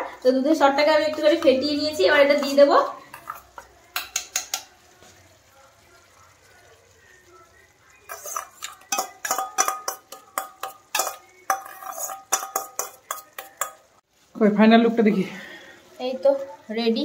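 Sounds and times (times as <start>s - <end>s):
spoon scraping and tapping steel bowl: 2.4s - 4.7s, 8.1s - 13.9s.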